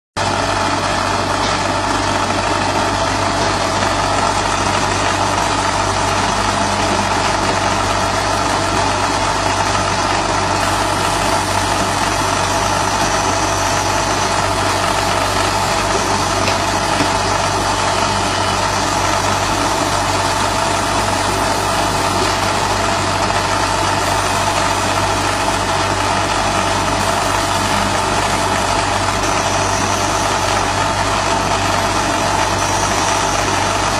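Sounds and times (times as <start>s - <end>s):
laser machine hum and whir: 0.2s - 33.9s.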